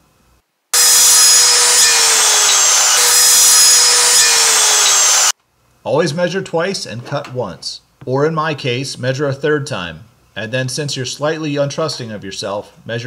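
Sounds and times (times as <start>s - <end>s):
circular saw cutting wood: 0.8s - 5.3s.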